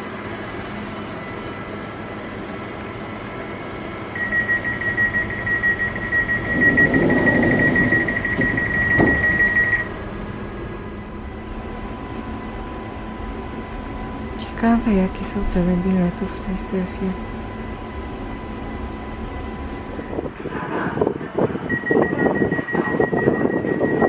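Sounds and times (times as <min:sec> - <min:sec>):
high warning tone: 0:00.0 - 0:20.4, 0:21.4 - 0:24.0
train equipment hum: 0:00.0 - 0:24.0
train doors sliding shut: 0:06.4 - 0:09.8
doors closing thump: 0:06.5 - 0:09.7.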